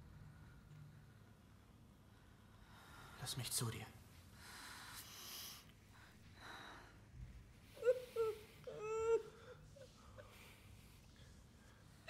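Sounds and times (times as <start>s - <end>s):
soft breathing: 0.0s - 3.3s, 4.1s - 12.0s
woman whimpering: 7.7s - 10.4s.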